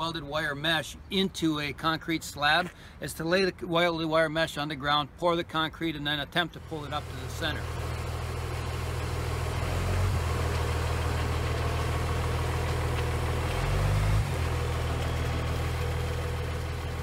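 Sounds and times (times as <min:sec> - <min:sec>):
truck diesel engine running: 0:06.6 - 0:17.0.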